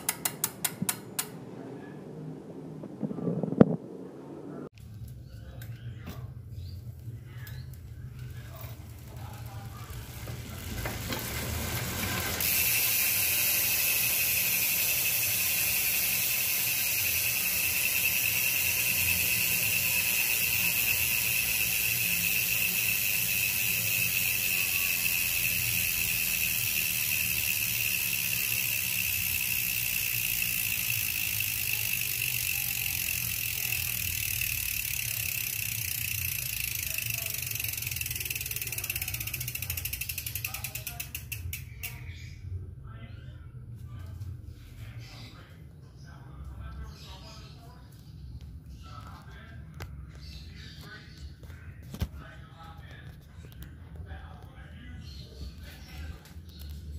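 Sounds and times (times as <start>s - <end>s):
bicycle freehub ratchet buzzing: 0.0s - 1.4s, 6.6s - 42.0s.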